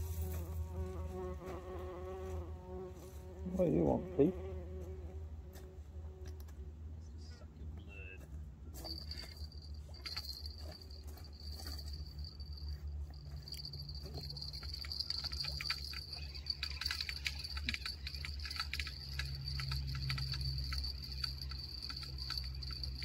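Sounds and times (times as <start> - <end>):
low steady rumble: 5.1 - 23.0
cicadas buzzing: 11.9 - 23.0.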